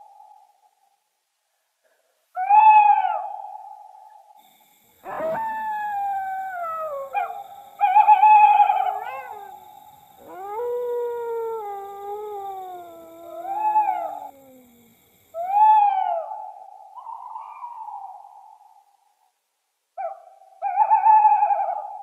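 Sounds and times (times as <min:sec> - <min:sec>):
long descending howls: 0:04.5 - 0:16.3
rising and falling call: 0:05.0 - 0:15.6.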